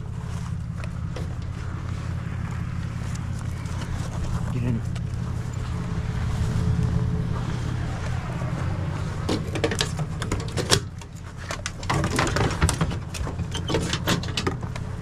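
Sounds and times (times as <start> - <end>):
vehicle engine idling: 0.0 - 15.0
sharp clicks knocks and rattles: 0.7 - 1.8, 9.2 - 15.0.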